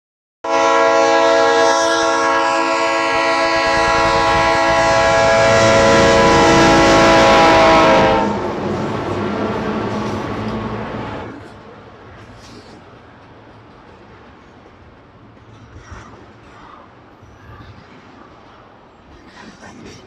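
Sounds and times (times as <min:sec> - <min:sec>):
train horn blast: 0:00.4 - 0:11.4
train rumble: 0:00.5 - 0:20.0.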